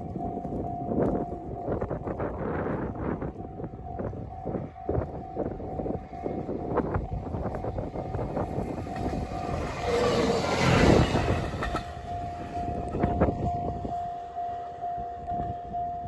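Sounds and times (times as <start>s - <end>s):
level-crossing alarm dinging: 0.0s - 16.0s
railcar passing at speed: 5.4s - 15.8s.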